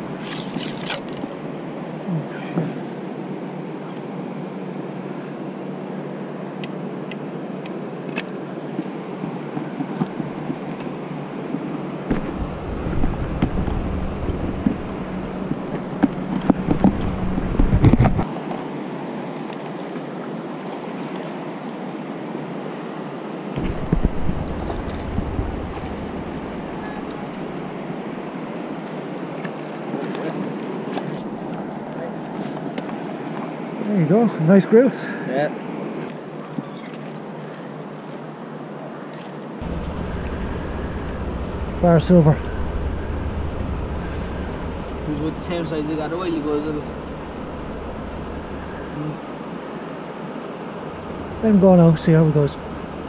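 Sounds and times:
river water pouring over weir: 0.0 - 1.5, 23.6 - 31.4, 39.6 - 53.0
wind buffeting microphone: 12.1 - 18.3, 23.6 - 28.3, 39.6 - 49.0, 50.8 - 53.0.

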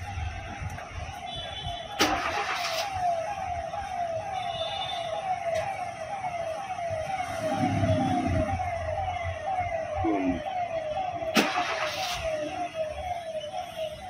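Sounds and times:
electronic warning beeps: 7.3 - 14.0.

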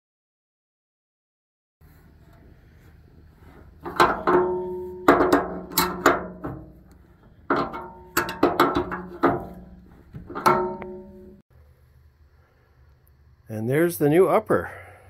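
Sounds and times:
wrench clanking on metal: 3.8 - 11.4.

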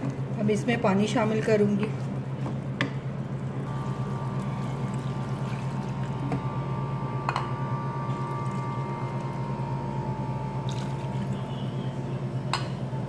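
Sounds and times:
steady low hum: 0.0 - 13.0
water pouring into a pan: 10.7 - 11.3.

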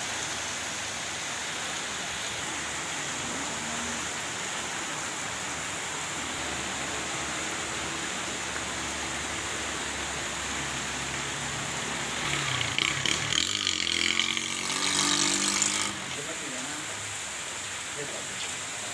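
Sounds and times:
heavy rain: 0.0 - 18.9
running floodwater: 0.0 - 18.9
loud uneven noise: 6.0 - 17.1.

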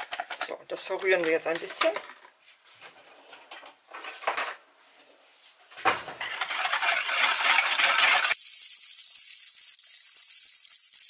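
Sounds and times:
thin hiss: 8.3 - 11.0.

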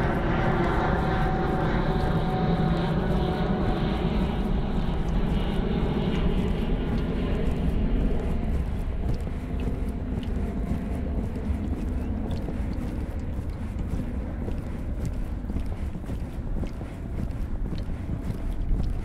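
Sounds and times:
jet aircraft flying over: 0.0 - 15.7.

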